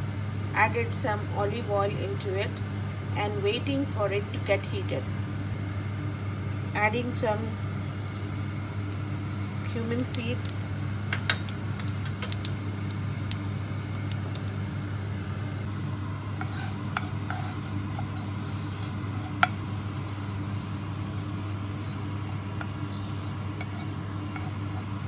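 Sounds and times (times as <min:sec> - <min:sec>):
steady low hum: 0:00.0 - 0:25.0
seeds sizzling in hot oil: 0:07.7 - 0:15.7, 0:16.4 - 0:24.8
wooden spatula scraping pan: 0:16.4 - 0:20.4, 0:21.2 - 0:24.9.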